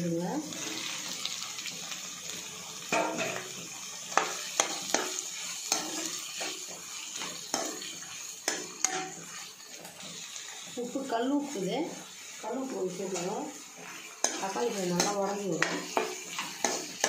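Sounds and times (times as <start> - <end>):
vegetables sizzling in a frying pan: 0.0 - 17.0
steel spoon scraping a pan: 2.9 - 17.0.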